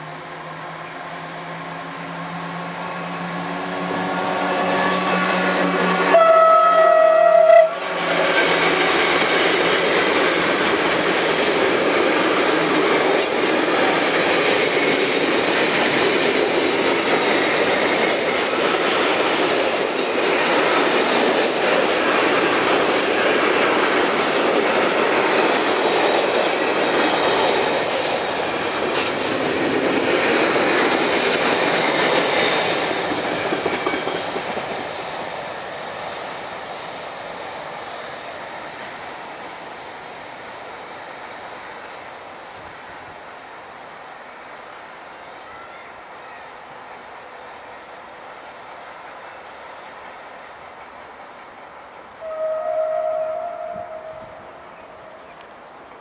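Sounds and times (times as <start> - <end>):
wheels on rails: 0.5 - 40.2
locomotive horn blast: 4.0 - 7.9, 52.2 - 55.2.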